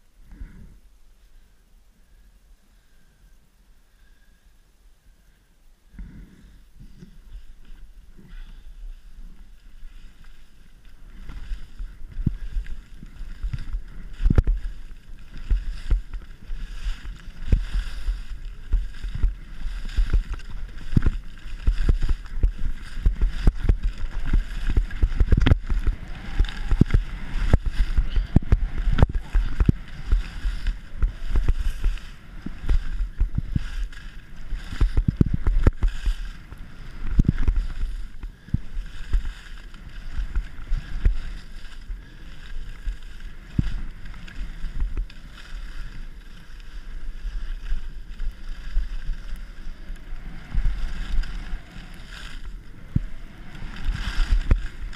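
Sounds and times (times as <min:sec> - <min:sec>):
skis scraping over snow: 0:06.0 - 0:54.9
wind buffeting microphone: 0:07.2 - 0:54.9
skis knocking over bumps: 0:10.1 - 0:49.5.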